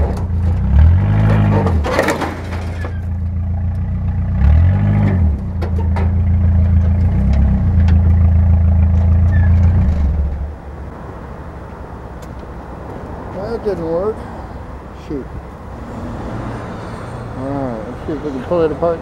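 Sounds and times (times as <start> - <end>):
metal clanks: 0.0 - 3.9, 4.9 - 10.5
vehicle engine straining: 0.0 - 19.0.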